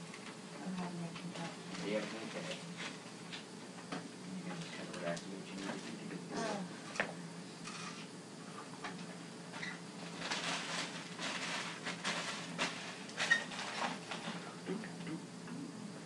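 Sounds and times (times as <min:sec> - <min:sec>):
steady low hum: 0:00.0 - 0:16.0
objects rustling and clattering: 0:08.8 - 0:14.5.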